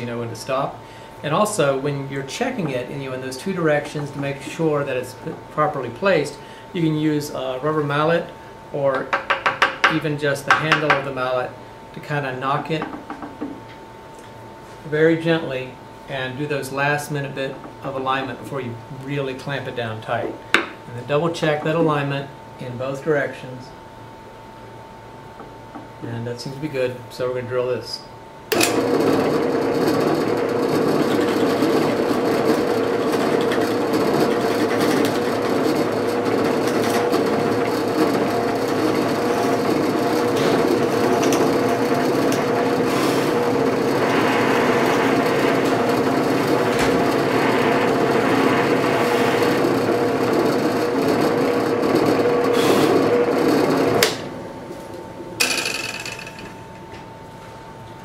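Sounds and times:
drill press running: 28.5s - 56.8s.

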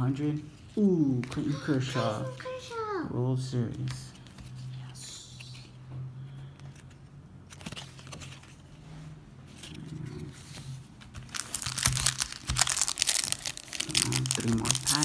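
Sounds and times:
foil wrapper crinkling and tearing: 11.2s - 15.0s.

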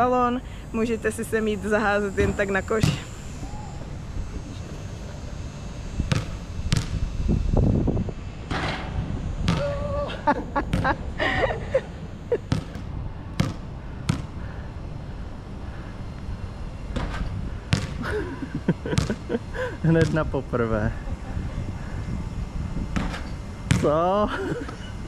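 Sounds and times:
basketball bouncing on court: 2.2s - 3.1s, 6.1s - 7.0s, 9.5s - 9.7s, 10.7s - 11.0s, 12.5s - 14.3s, 17.0s - 18.0s, 19.0s - 19.2s, 19.9s - 20.3s, 23.0s - 24.0s.

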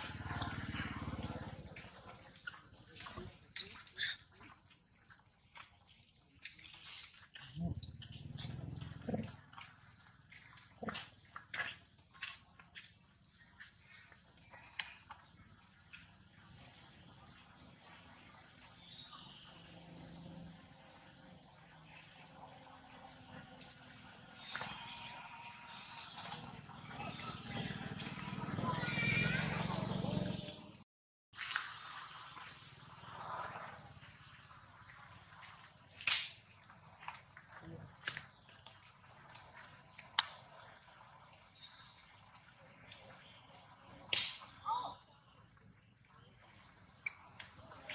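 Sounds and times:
insects chirring: 0.0s - 30.6s, 31.4s - 47.9s
high-pitched insect drone: 23.2s - 30.6s.

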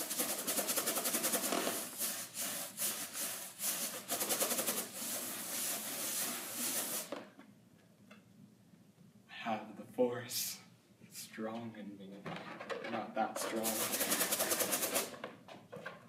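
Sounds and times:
balloon rubbing against hair: 0.0s - 7.2s, 13.5s - 15.1s.

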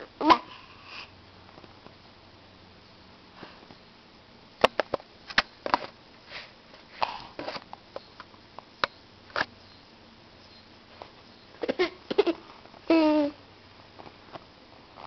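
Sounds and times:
baby sniffing: 6.3s - 7.6s.

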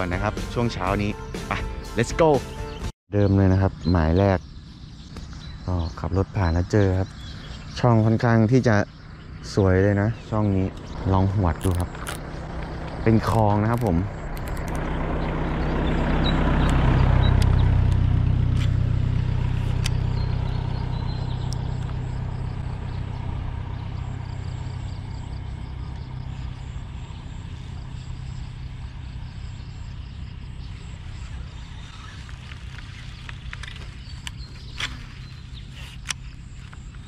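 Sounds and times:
motorcycle engine humming: 0.0s - 37.0s
sharp clicks: 10.7s - 15.4s, 32.3s - 35.4s, 36.0s - 37.0s.

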